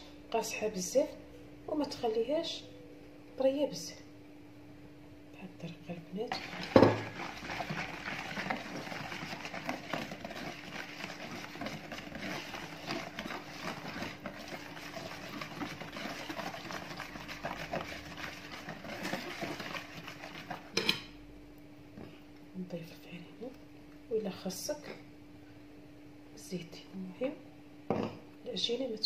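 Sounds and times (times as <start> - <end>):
whisk scraping a plastic bowl: 6.3 - 20.8
knock on bowl: 6.7 - 7.1, 27.9 - 28.2.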